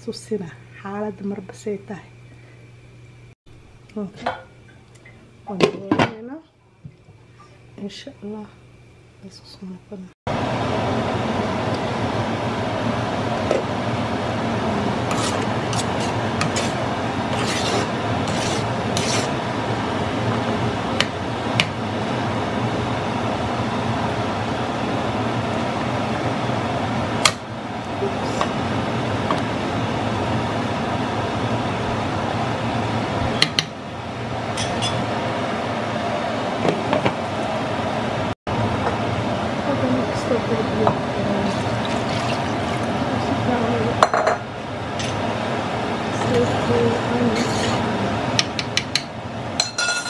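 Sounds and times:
ladle scraping a cooking pot: 15.0 - 19.4, 47.3 - 47.8.

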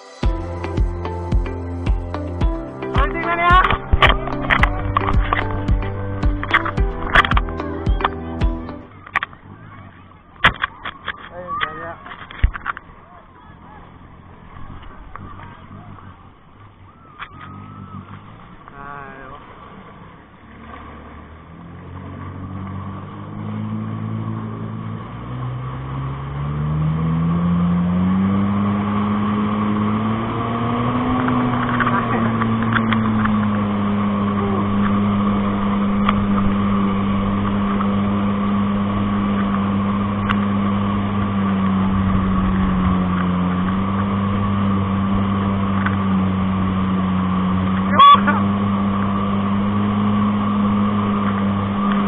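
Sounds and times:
rushing wake water and spray: 0.0 - 52.0
speedboat engine throttling up: 0.0 - 52.0.

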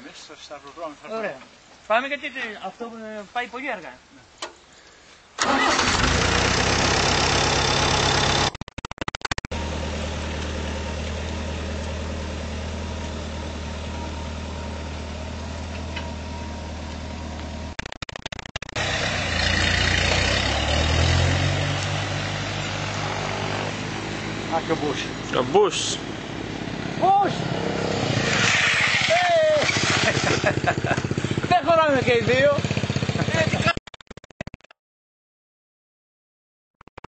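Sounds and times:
tractor engine running: 5.4 - 33.8.

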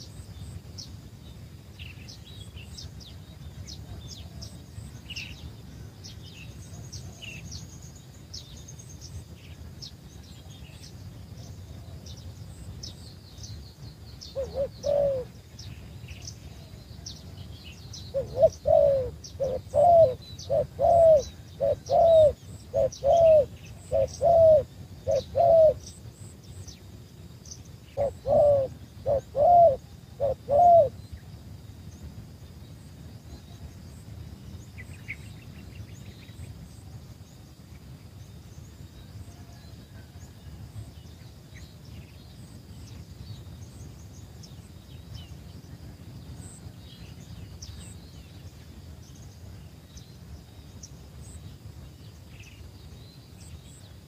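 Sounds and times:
small birds chirping: 0.0 - 54.0
dove cooing: 14.3 - 15.4, 18.1 - 26.3, 27.9 - 31.0.

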